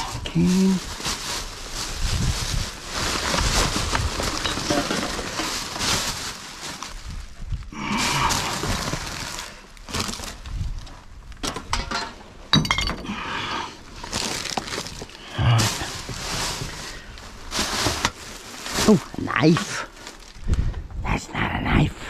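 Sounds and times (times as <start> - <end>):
rubbish rustling: 0.0 - 12.9, 13.8 - 20.8
glass bottles clinking: 4.4 - 5.4, 11.7 - 13.1.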